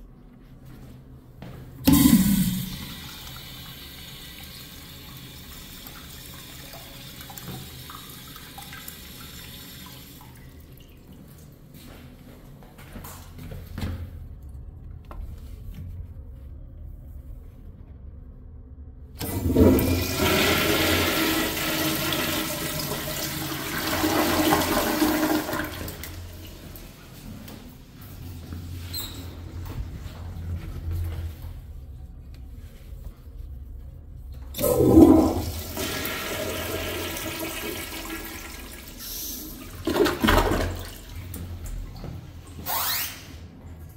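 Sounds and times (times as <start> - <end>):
toilet flushing: 1.8 - 11.1, 19.2 - 30.2, 34.5 - 43.4.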